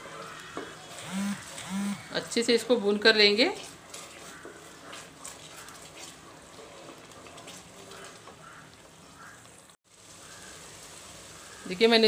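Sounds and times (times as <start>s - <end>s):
paste sizzling in oil: 3.5s - 12.0s.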